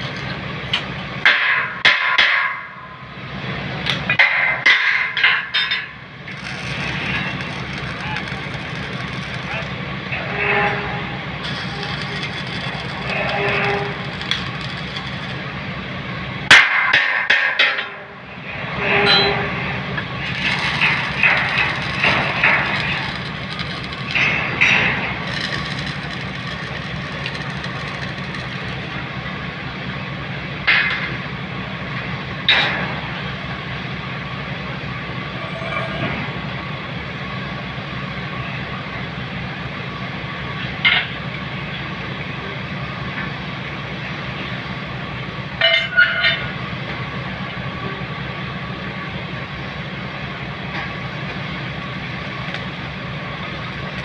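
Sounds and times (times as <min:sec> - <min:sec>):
welding arc crackling and hissing: 0:00.0 - 0:01.4, 0:05.2 - 0:10.1, 0:10.8 - 0:16.4, 0:19.9 - 0:29.5
steady low hum: 0:05.2 - 0:16.6, 0:17.9 - 0:40.6.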